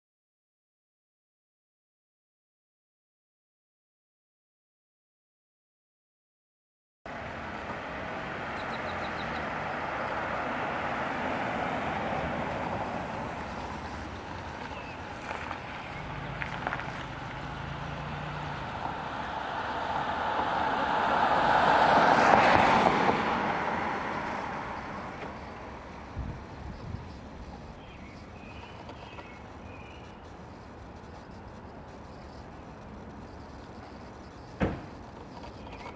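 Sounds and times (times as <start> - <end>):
minivan engine: 7.1 - 35.9
tyre hiss on wet road: 9.5 - 35.0.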